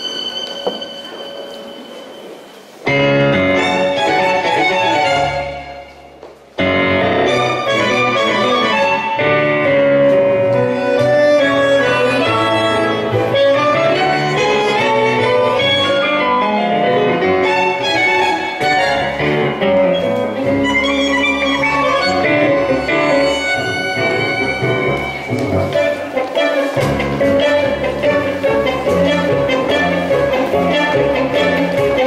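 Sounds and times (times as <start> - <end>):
bandoneon: 0.0 - 32.0
piano: 0.0 - 32.0
violin melody: 0.0 - 32.0.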